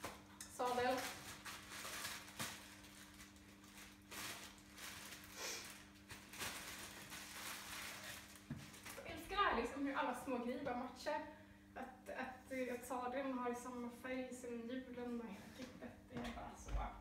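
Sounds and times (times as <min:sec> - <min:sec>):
plastic wrapping crinkling: 0:00.0 - 0:09.4
faint steady hum: 0:00.0 - 0:17.0.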